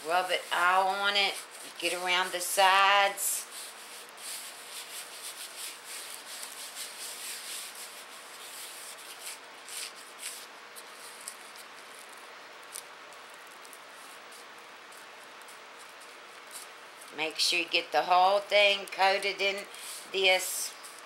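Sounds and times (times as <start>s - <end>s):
hand rubbing spice into steak: 0.0s - 12.1s.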